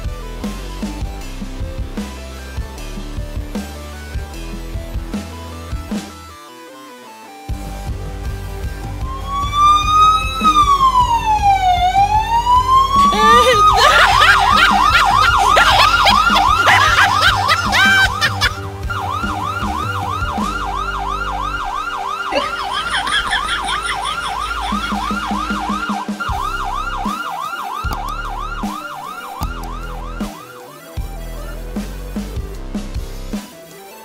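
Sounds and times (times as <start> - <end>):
background music: 0.0 - 34.0
electronic police siren yelp: 9.0 - 31.0.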